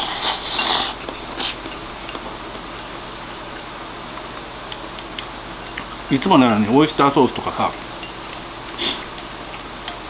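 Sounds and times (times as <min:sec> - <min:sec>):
chopsticks scraping ceramic bowl: 0:00.0 - 0:01.8.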